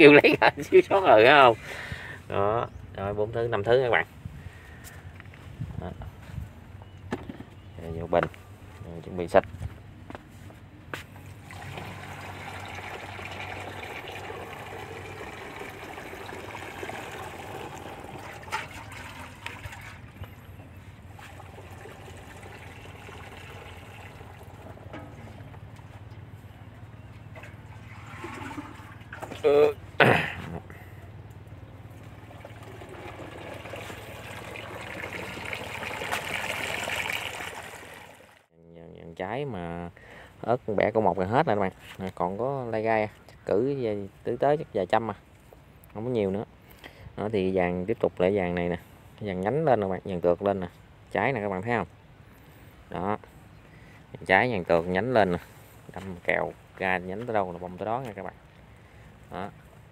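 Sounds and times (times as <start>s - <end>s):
liquid pouring into tank: 11.4s - 20.2s, 21.1s - 25.5s, 27.3s - 29.7s, 32.0s - 38.4s.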